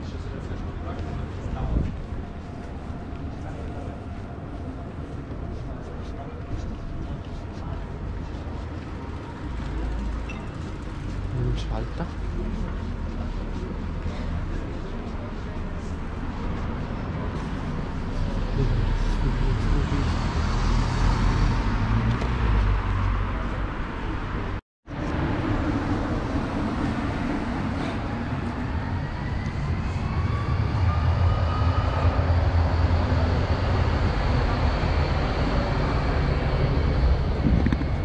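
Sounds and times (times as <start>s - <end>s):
traffic noise with low rumble: 0.0s - 38.0s
passing vehicle rising whine: 16.6s - 38.0s.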